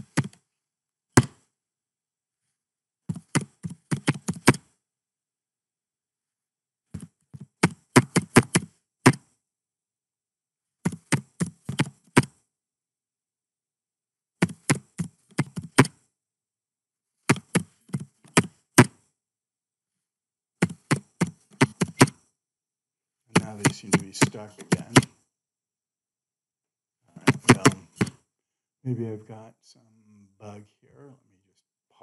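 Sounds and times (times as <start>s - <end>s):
computer keyboard typing: 23.4s - 25.1s.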